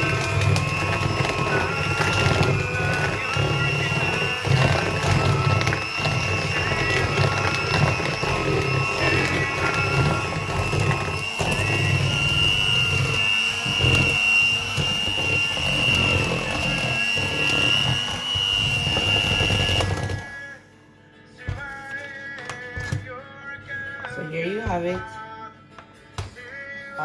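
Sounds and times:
electric hand mixer running: 0:00.0 - 0:20.4.

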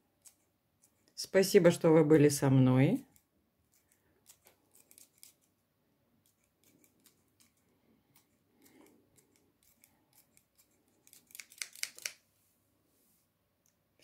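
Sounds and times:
scissors snipping chives: 0:09.2 - 0:12.2.

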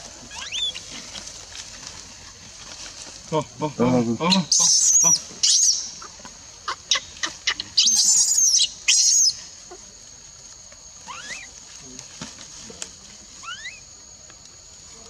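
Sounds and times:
baby monkey screaming: 0:00.3 - 0:00.8, 0:04.3 - 0:06.0, 0:06.7 - 0:09.3, 0:11.0 - 0:11.5, 0:13.4 - 0:13.8
high-pitched squeaks and chirps: 0:00.3 - 0:00.8, 0:04.3 - 0:06.1, 0:06.7 - 0:09.4, 0:11.0 - 0:11.6, 0:13.4 - 0:13.8.

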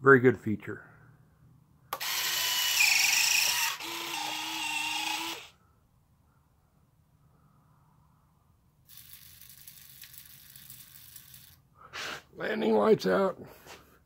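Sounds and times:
retract motors whirring: 0:02.0 - 0:05.5.

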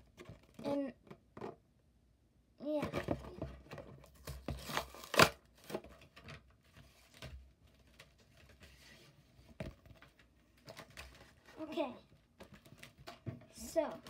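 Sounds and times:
plastic packaging crackling and tearing: 0:04.6 - 0:05.7.

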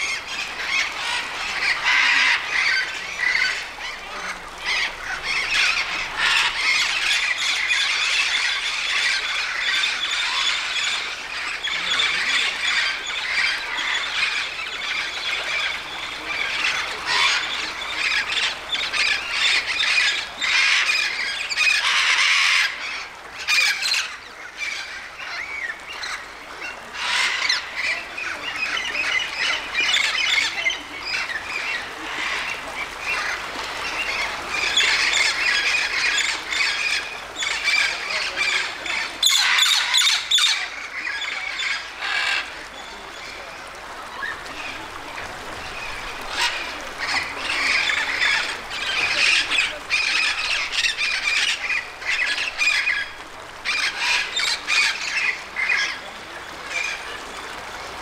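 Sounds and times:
parrots squawking and screeching: 0:00.6 - 0:03.6, 0:04.3 - 0:11.0, 0:19.3 - 0:22.8, 0:27.0 - 0:27.7, 0:34.7 - 0:42.4, 0:53.7 - 0:55.9.

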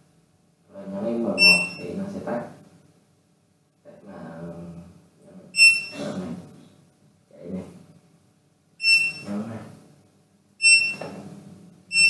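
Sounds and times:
short high buzzer beeps: 0:01.4 - 0:01.8, 0:05.6 - 0:06.1, 0:08.8 - 0:09.3, 0:10.6 - 0:11.0.

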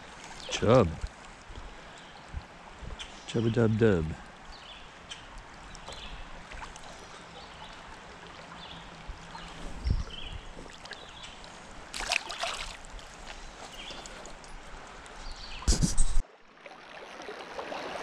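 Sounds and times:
river water rippling: 0:00.0 - 0:18.0
brief splash: 0:11.9 - 0:12.9.

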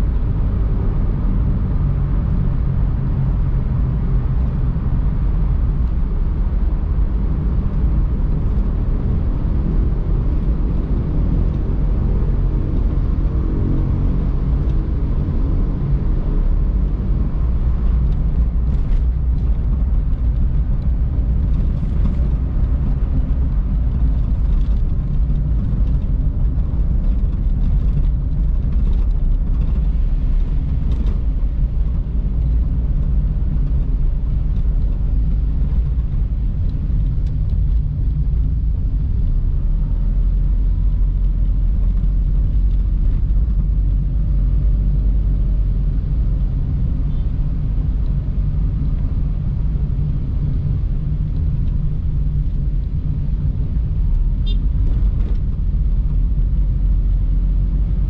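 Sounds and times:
car driving on road: 0:00.0 - 0:58.0.

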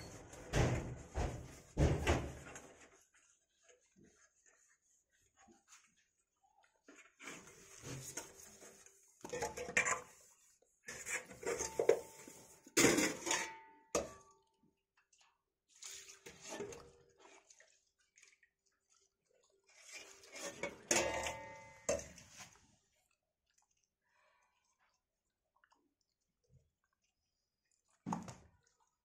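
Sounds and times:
metal pots clanking on concrete: 0:09.2 - 0:10.3, 0:10.9 - 0:14.3, 0:20.2 - 0:22.4.

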